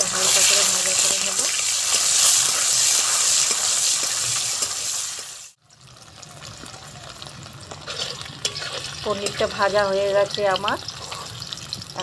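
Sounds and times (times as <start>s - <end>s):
metal spatula stirring in pan: 0.0s - 5.4s, 7.7s - 11.6s
cheese sizzling in hot oil: 0.0s - 12.0s.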